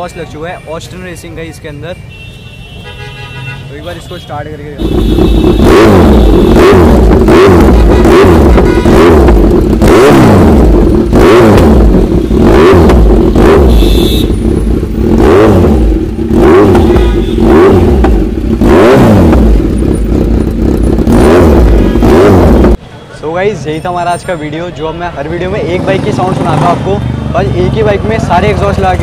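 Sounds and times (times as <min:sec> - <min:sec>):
motorcycle engine revving: 0:04.7 - 0:22.8, 0:25.5 - 0:29.0.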